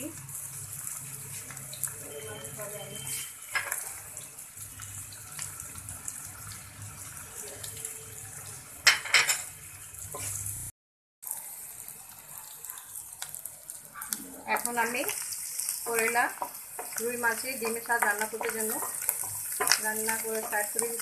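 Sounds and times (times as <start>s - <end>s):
food sizzling in oil: 0.0s - 21.0s
spatula scraping a pan: 16.4s - 21.0s.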